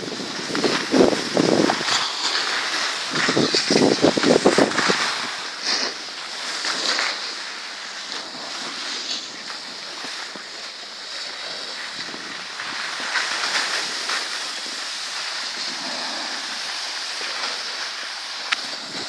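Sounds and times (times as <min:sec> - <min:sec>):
wind on microphone: 0:00.0 - 0:02.2, 0:03.0 - 0:05.4, 0:18.6 - 0:19.0
snowboard scraping over snow: 0:00.0 - 0:19.0.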